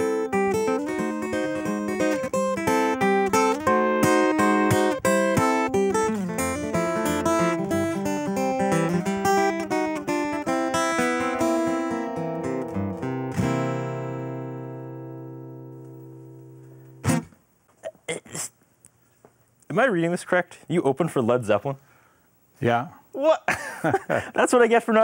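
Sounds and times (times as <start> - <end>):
acoustic guitar playing: 0.0 - 17.8.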